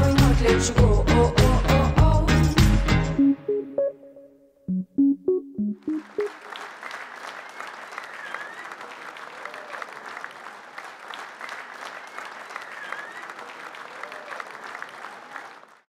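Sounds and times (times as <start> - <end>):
audience applauding: 5.8 - 15.9.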